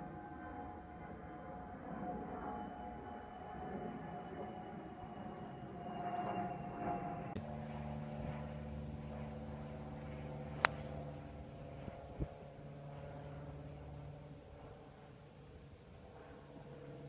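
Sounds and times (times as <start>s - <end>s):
steady low hum: 7.3s - 15.8s
golf club striking ball: 10.5s - 11.0s.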